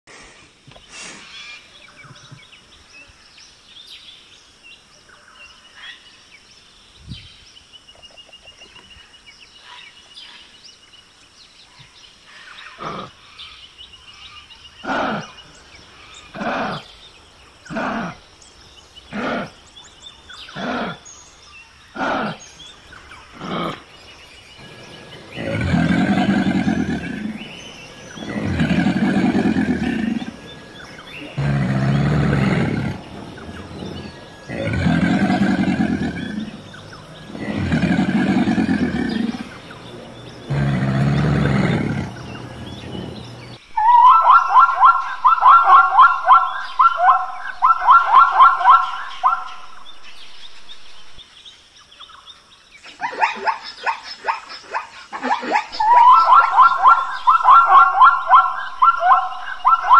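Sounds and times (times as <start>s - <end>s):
long deep animal calls: 24.6s - 49.9s, 55.7s - 59.9s
faint animal chirps: 40.5s - 49.9s, 55.4s - 59.9s.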